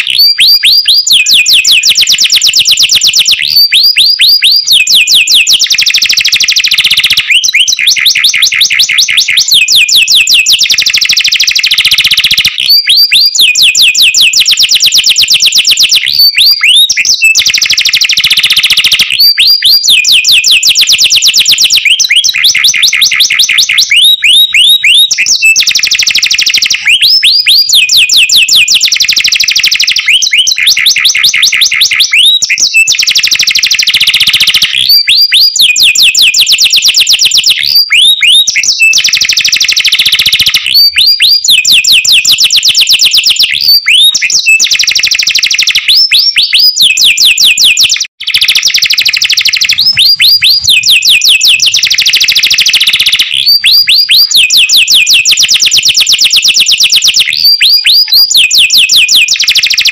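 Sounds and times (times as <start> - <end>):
canary singing fast trills: 0.0 - 59.9.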